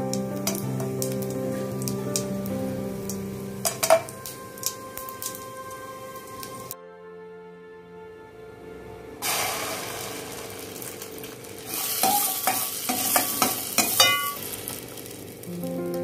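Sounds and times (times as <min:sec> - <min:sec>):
spices sizzling in pan: 0:00.0 - 0:06.8, 0:09.2 - 0:16.0
metal spoon scraping pan: 0:11.7 - 0:14.5.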